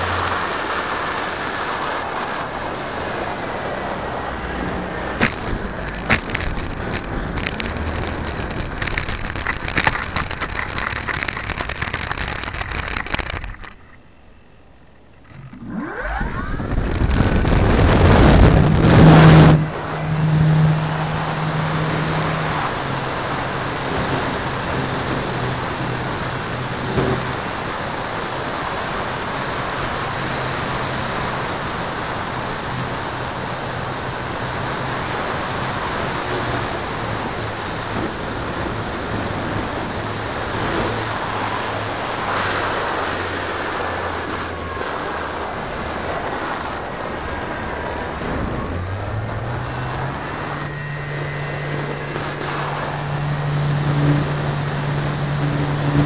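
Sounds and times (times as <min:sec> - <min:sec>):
model plane rattling over grass: 0:05.2 - 0:14.0, 0:14.9 - 0:27.7
electric motors droning: 0:12.0 - 0:28.2, 0:44.0 - 0:56.0.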